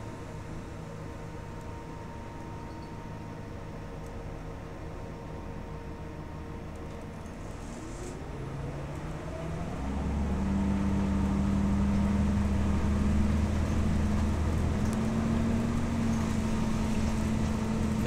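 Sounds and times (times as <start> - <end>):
bus drivetrain whine: 0.0 - 18.0
bus engine low drone: 0.0 - 18.0.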